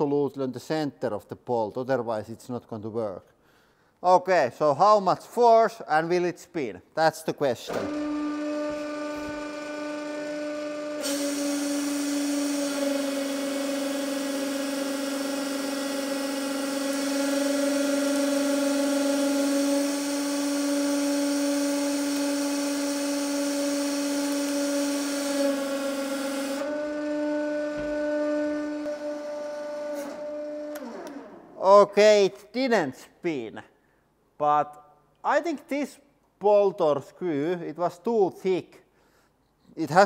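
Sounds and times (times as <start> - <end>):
pump motor whining: 7.7 - 31.6.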